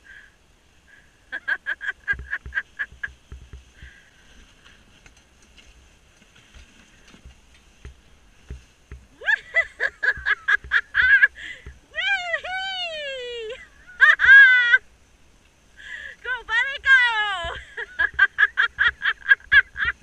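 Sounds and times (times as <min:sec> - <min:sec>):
soft low thuds: 0:02.0 - 0:04.1, 0:07.0 - 0:11.9.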